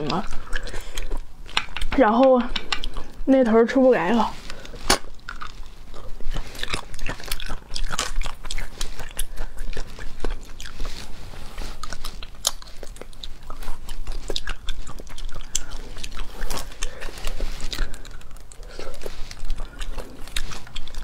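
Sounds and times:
chewing: 0:00.0 - 0:21.0
sharp clicks and smacks: 0:01.5 - 0:03.0
sucking and slurping: 0:02.6 - 0:21.0.

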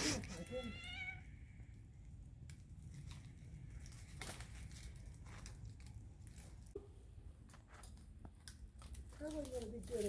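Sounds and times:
crinkling and rustling: 0:02.4 - 0:10.0.

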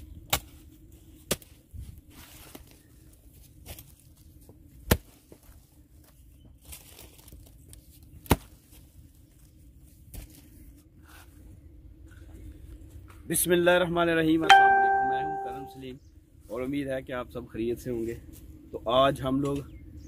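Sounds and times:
dry leaves rustling: 0:02.1 - 0:04.5, 0:06.6 - 0:10.6.

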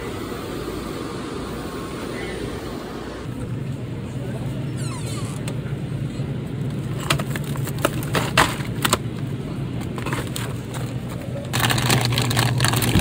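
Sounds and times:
refrigerator low hum: 0:00.0 - 0:13.0
plastic packages crinkling: 0:11.5 - 0:13.0.

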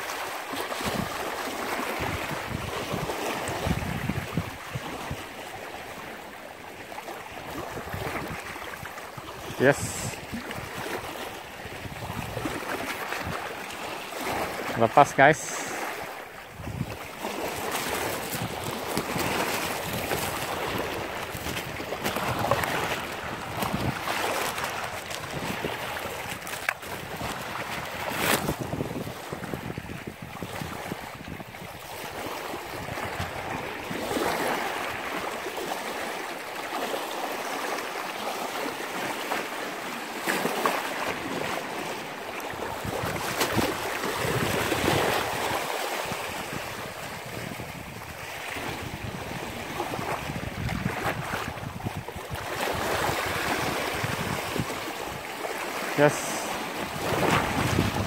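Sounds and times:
small waves washing on shore: 0:00.0 - 0:58.0
wind buffeting microphone: 0:00.8 - 0:05.4, 0:07.5 - 0:13.6, 0:16.4 - 0:34.5, 0:42.5 - 0:55.4, 0:56.8 - 0:58.0.

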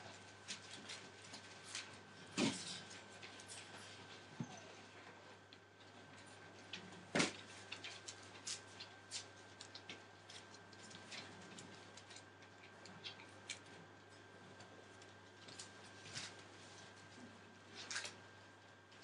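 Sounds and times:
puppies rustling on newspaper: 0:00.1 - 0:04.3, 0:07.3 - 0:13.6, 0:15.0 - 0:19.0.

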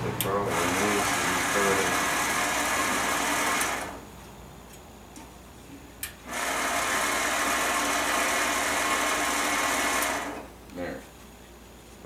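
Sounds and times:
band saw running: 0:00.4 - 0:04.0, 0:06.3 - 0:10.4.

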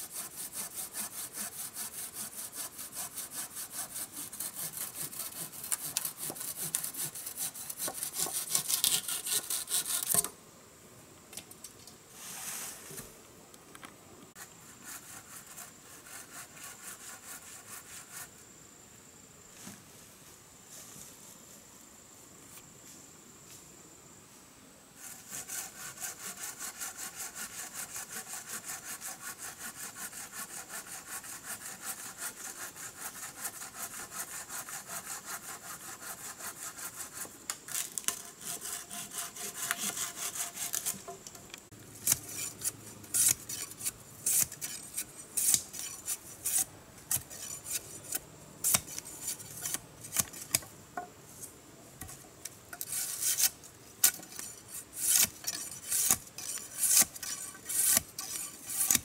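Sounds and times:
hand saw cutting wood: 0:00.0 - 0:10.3, 0:25.0 - 0:41.3, 0:42.0 - 0:50.6, 0:52.8 - 0:59.0.

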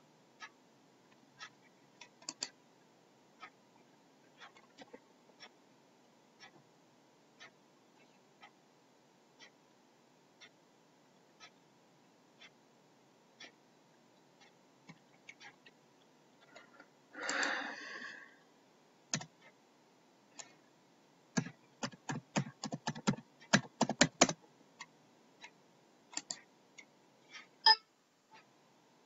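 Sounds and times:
keyboard and mouse clicks: 0:02.0 - 0:02.6, 0:16.4 - 0:17.6, 0:19.1 - 0:19.4, 0:21.4 - 0:24.9, 0:26.1 - 0:26.5.

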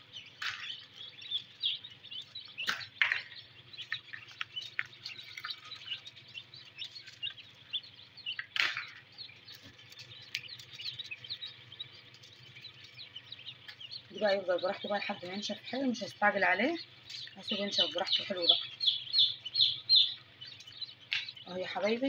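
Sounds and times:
ducklings peeping: 0:00.0 - 0:22.0.

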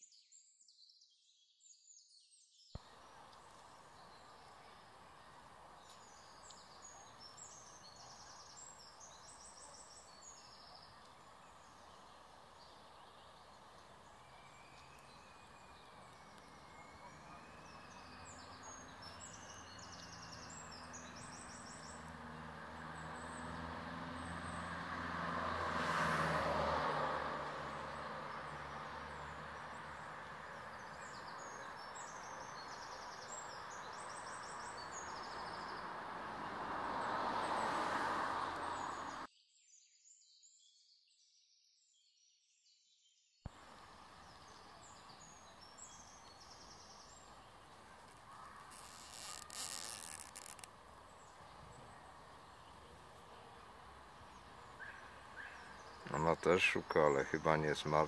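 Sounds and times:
songbirds chirping: 0:00.0 - 0:39.3, 0:43.5 - 0:58.0
vehicles passing: 0:02.8 - 0:39.3, 0:43.5 - 0:58.0.

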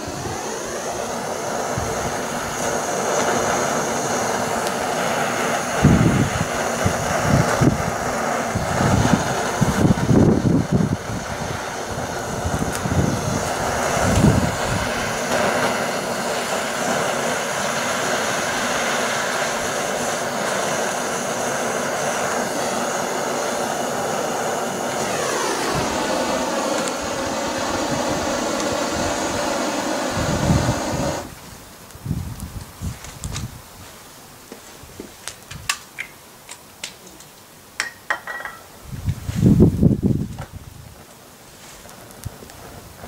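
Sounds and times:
gas torch hissing: 0:00.0 - 0:36.4, 0:37.5 - 0:43.0.

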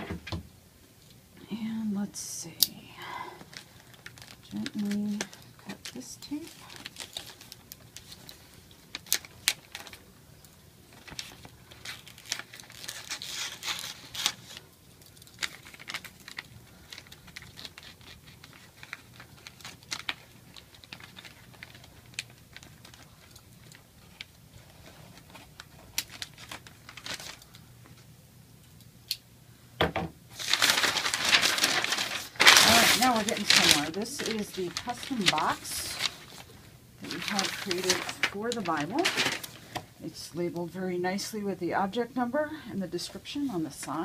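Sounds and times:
paper crinkling and rustling: 0:03.4 - 0:10.1, 0:10.9 - 0:28.1, 0:30.3 - 0:40.0.

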